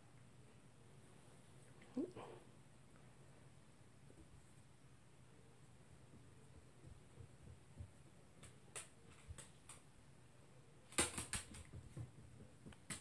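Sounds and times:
dog claws clicking on floor: 0:07.8 - 0:09.9, 0:10.9 - 0:13.0.

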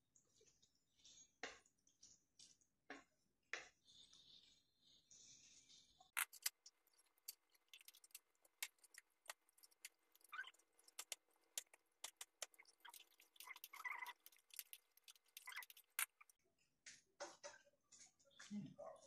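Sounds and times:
stew bubbling in a pan: 0:06.3 - 0:16.3.

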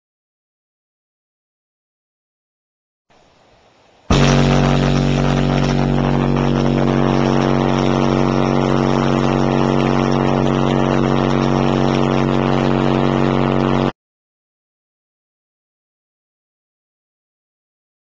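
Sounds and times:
overdriven microphone buzz: 0:04.1 - 0:14.0
subwoofer playing steady bass tone: 0:04.1 - 0:14.0.

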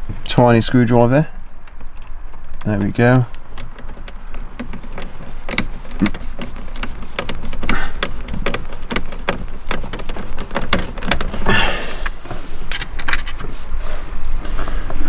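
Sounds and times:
plastic parts clicking and rattling: 0:01.6 - 0:13.6
scraping rustle: 0:01.7 - 0:15.0.

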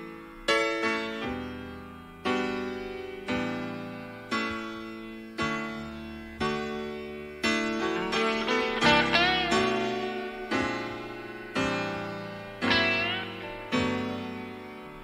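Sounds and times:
piano playing slow chords: 0:00.0 - 0:15.0.

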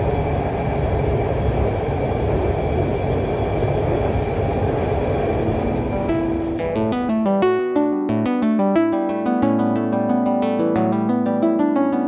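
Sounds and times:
train wheels rumbling on track: 0:00.0 - 0:06.8.

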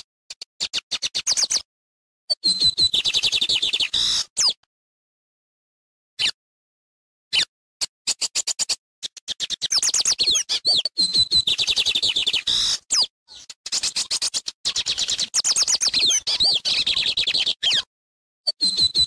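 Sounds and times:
bird singing high-pitched notes: 0:02.3 - 0:04.6, 0:08.1 - 0:17.9, 0:18.5 - 0:19.0.

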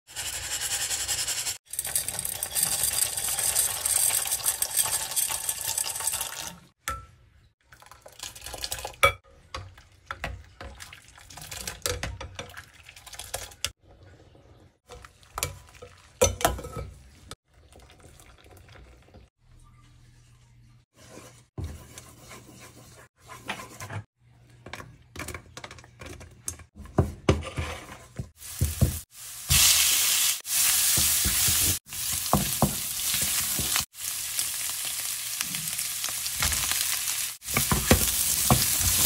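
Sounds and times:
spoon scraping glass pot: 0:00.2 - 0:06.5
water rushing in a pot: 0:17.0 - 0:19.3.

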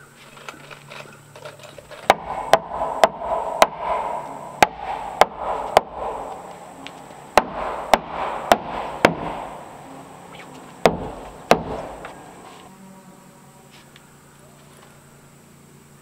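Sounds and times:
hammer striking wood: 0:02.0 - 0:09.7, 0:10.8 - 0:12.2.

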